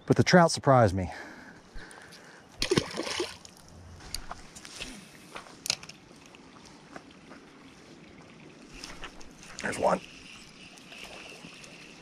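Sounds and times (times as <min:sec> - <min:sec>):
water splashing and sloshing: 0:02.6 - 0:12.0.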